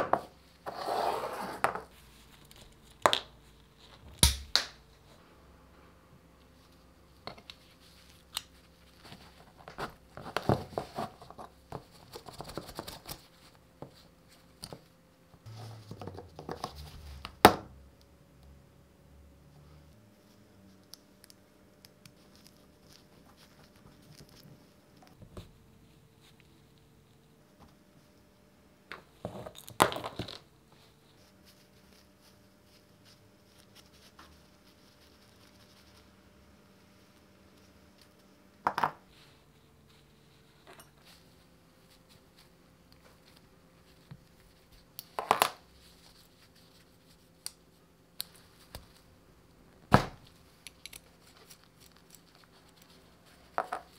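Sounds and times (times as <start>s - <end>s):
rustling of handling: 6.4s - 17.3s, 22.0s - 27.9s, 29.1s - 36.2s, 39.0s - 49.1s, 50.3s - 53.9s.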